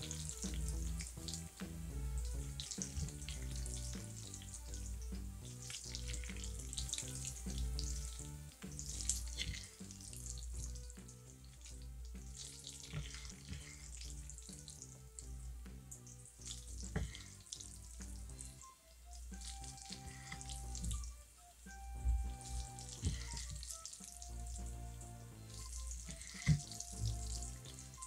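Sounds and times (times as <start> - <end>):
soft background music: 0.0 - 28.0
wet squishing and slapping noodles: 0.0 - 28.0.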